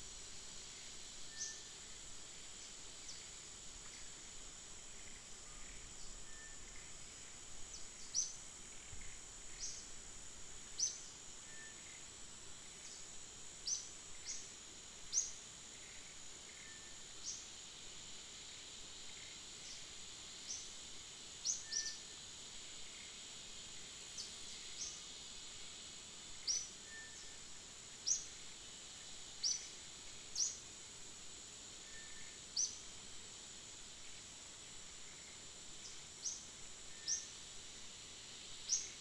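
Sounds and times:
high-pitched insect drone: 0.2s - 39.0s.

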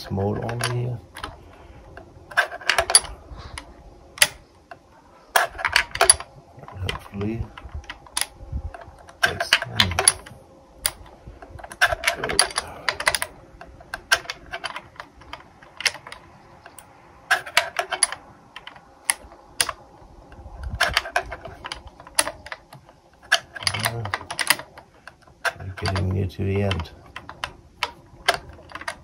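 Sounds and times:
hex key clicking in screw: 20.6s - 29.0s.

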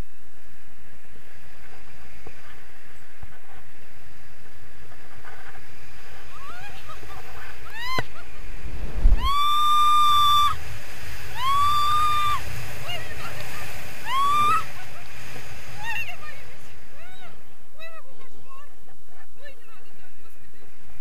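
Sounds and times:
wind rushing over microphone: 0.0s - 21.0s
woman squealing with excitement: 7.7s - 8.2s, 9.2s - 10.6s, 11.3s - 12.4s, 14.0s - 14.8s
woman whooping: 7.7s - 8.2s, 9.2s - 10.6s, 11.3s - 12.4s, 14.0s - 14.9s.

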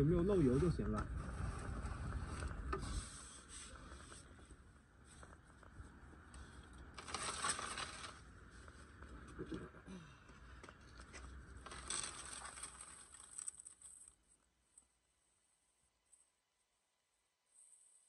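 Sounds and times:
bucket and cardboard scraping concrete: 0.3s - 4.3s.

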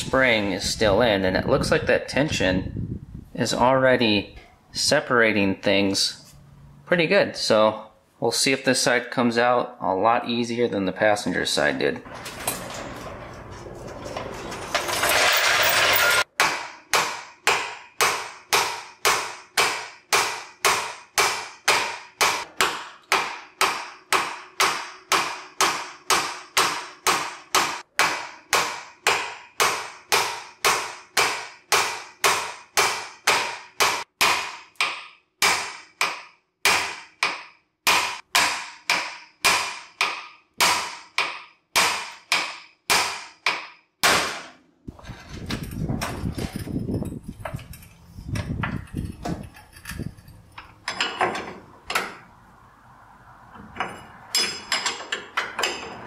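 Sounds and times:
hammer striking steel: 14.8s - 44.6s, 53.8s - 56.0s.

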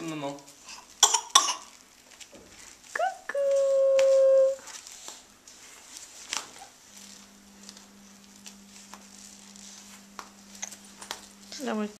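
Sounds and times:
faint steady hum: 0.0s - 11.9s.

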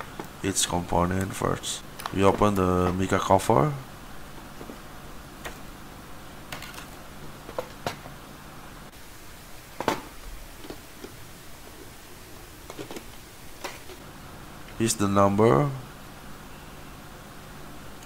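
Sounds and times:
stiff plastic crinkling and clicking: 2.0s - 3.0s.

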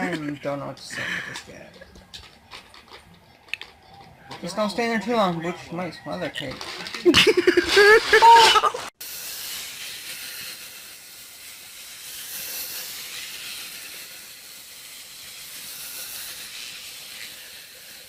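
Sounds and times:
outdoor background hiss: 0.0s - 18.0s.

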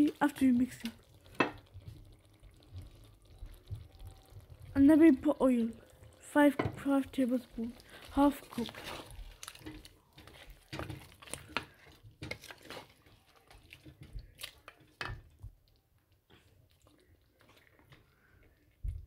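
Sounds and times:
meat crackling in hot oil: 0.0s - 19.0s
spatula scraping pot: 6.6s - 15.2s.

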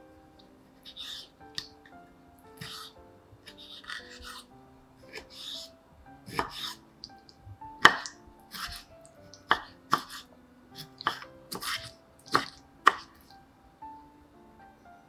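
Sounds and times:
soft background music: 0.0s - 15.0s.

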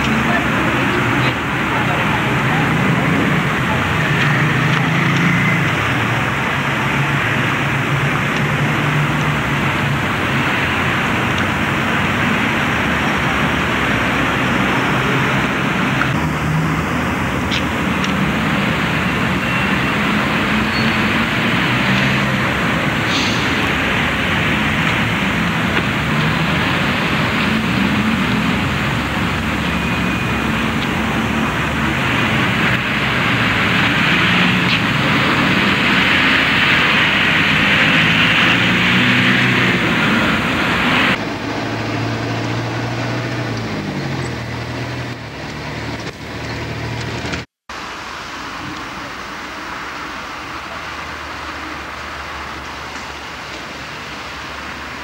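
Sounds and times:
road noise hiss: 0.0s - 55.0s
vehicle engines passing: 0.0s - 55.0s.

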